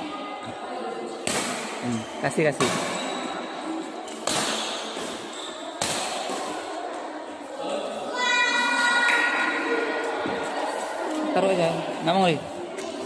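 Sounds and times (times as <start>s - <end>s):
racket striking shuttlecock: 4.1s - 5.2s, 5.8s - 6.6s.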